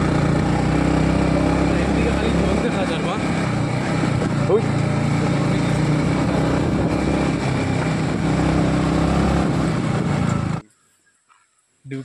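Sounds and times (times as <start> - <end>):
motorcycle engine running: 0.0 - 10.6
wind noise on microphone: 6.2 - 10.6.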